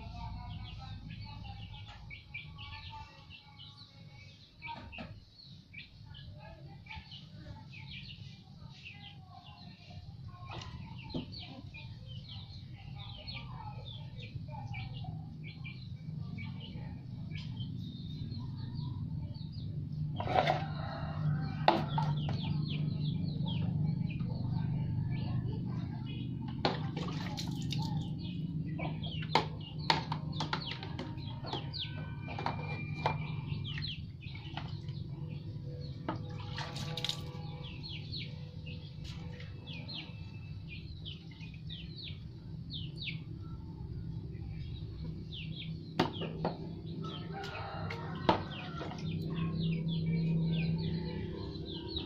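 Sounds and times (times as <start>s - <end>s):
small birds chirping: 0.0s - 52.0s
water splashing in a basin: 26.5s - 28.1s, 36.1s - 37.6s.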